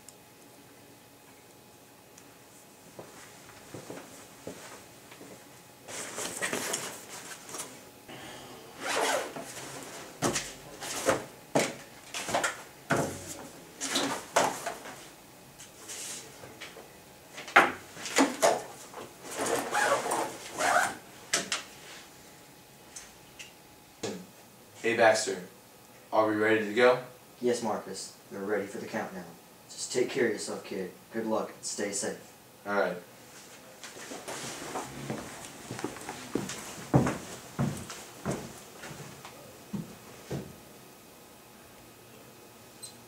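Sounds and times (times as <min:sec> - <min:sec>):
zipper sounds: 0:08.8 - 0:09.5, 0:19.3 - 0:21.0
backpack rustling: 0:19.2 - 0:20.9.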